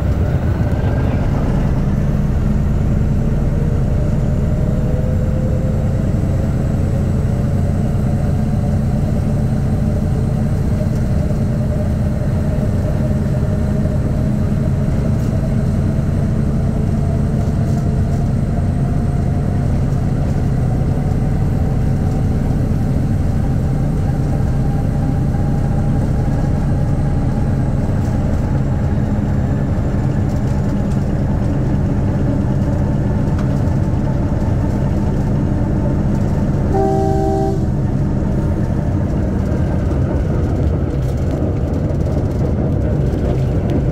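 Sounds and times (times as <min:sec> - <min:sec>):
engine whine rising in pitch: 0:00.0 - 0:17.2, 0:34.0 - 0:39.2
locomotive engine running: 0:00.0 - 0:43.9
locomotive horn: 0:36.7 - 0:38.0.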